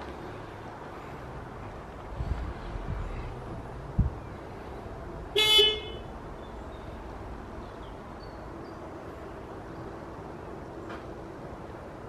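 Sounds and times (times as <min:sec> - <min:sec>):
outdoor background noise: 0:00.0 - 0:12.0
car horn toot: 0:05.4 - 0:06.1.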